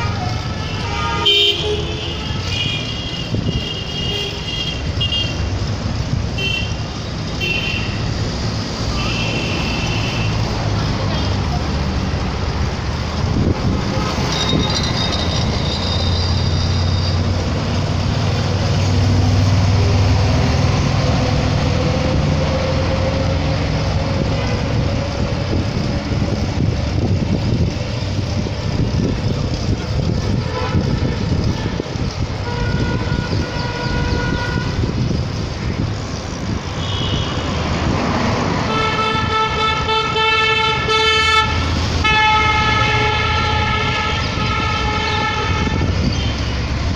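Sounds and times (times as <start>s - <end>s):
multi-tone horn long blasts: 0.0s - 5.4s, 30.2s - 35.0s, 36.7s - 37.7s, 38.5s - 46.4s
engines rumbling: 0.0s - 46.9s
vehicles passing close: 0.0s - 46.9s.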